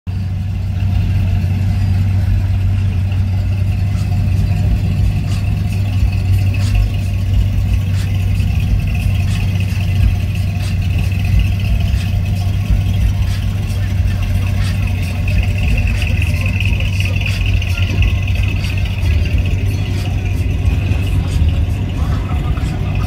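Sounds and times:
car engine low rumble: 0.0s - 23.0s.

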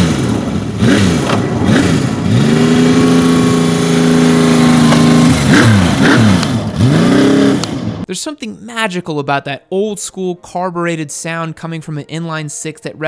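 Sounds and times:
motorcycle engine revving: 0.0s - 8.1s.

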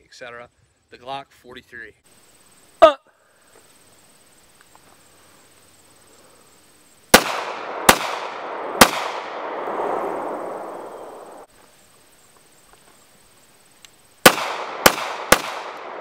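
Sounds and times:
pistol shots with echo: 7.1s - 11.3s, 14.2s - 16.0s.

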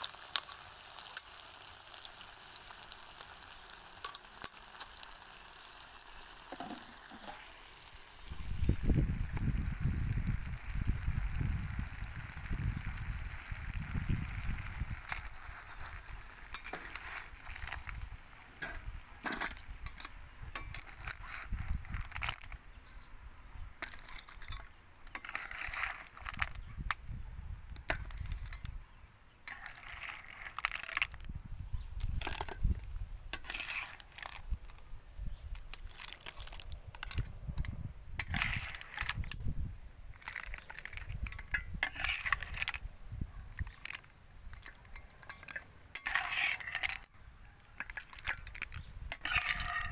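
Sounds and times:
metal spatula scraping a pan: 6.5s - 7.6s, 15.0s - 18.0s, 18.6s - 22.5s, 23.8s - 26.6s, 29.4s - 31.2s, 33.3s - 34.4s, 36.2s - 39.3s, 40.2s - 42.8s, 43.5s - 47.1s, 47.7s - 49.9s
snail shells clinking: 13.1s - 22.8s, 23.8s - 27.0s, 29.4s - 31.3s, 32.0s - 49.9s.

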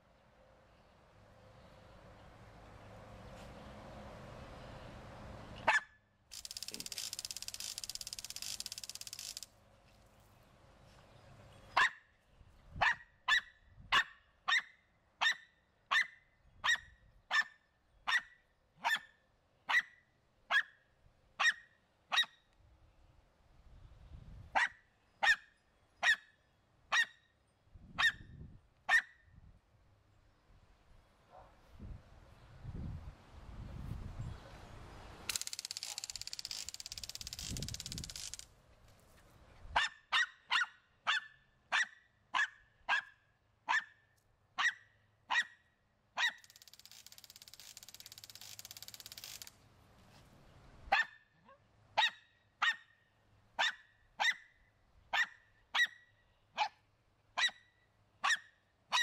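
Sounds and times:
small dog barking: 5.6s - 5.9s, 11.8s - 12.0s, 12.8s - 19.1s, 19.7s - 20.8s, 21.4s - 22.4s, 24.6s - 26.3s, 26.9s - 27.2s, 28.9s - 29.2s, 39.7s - 44.0s, 44.6s - 45.6s, 50.9s - 52.9s, 53.6s - 54.5s, 55.1s - 56.0s, 56.6s - 56.8s, 58.2s - 59.0s.

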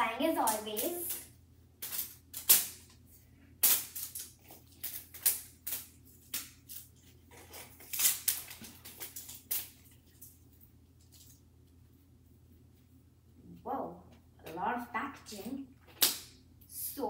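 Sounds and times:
plastic wrapping crackling and tearing: 3.6s - 11.4s.

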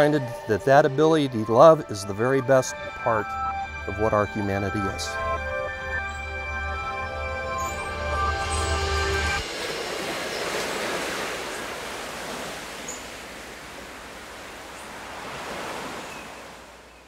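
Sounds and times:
ocean surf on rocky shore: 8.6s - 17.0s.

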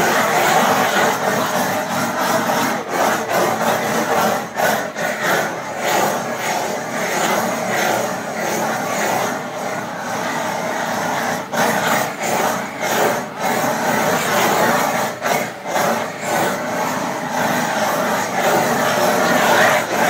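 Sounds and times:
blowtorch flame hissing: 0.0s - 20.0s.

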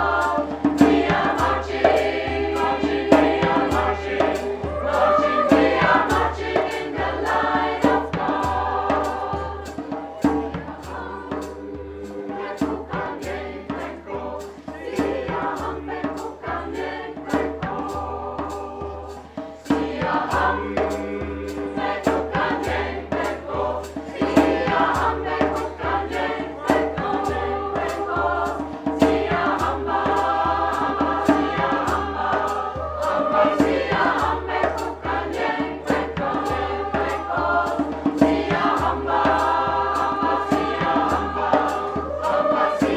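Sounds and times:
mixed choir singing: 0.0s - 42.9s.

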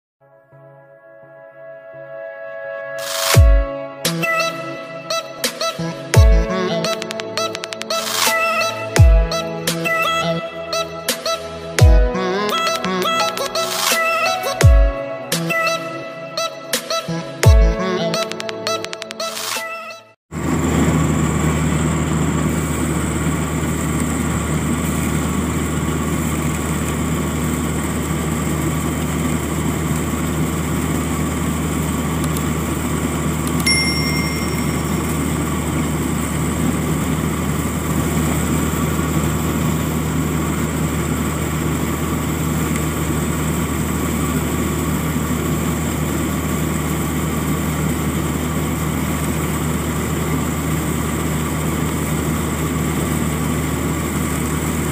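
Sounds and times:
high whine: 0.2s - 18.7s, 20.4s - 54.9s
combine harvester running: 20.3s - 54.9s
high-pitched ring: 33.6s - 35.6s.

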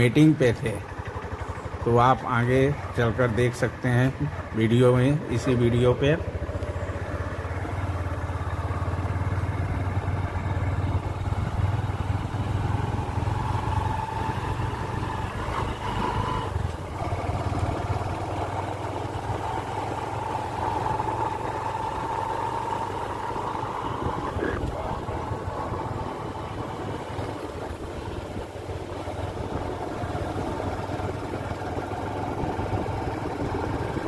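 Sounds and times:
vehicle engine throbbing: 0.0s - 34.0s.

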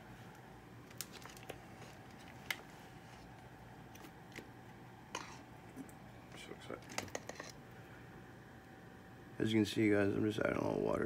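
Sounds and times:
faint steady hum: 0.0s - 11.0s
small objects clicking and tapping: 6.8s - 7.6s.

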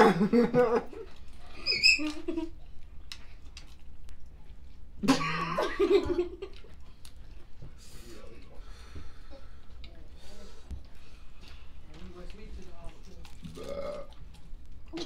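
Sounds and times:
high squeaky giggle: 1.6s - 2.5s
person laughing: 5.0s - 6.6s
crab shells cracking: 13.1s - 15.0s.

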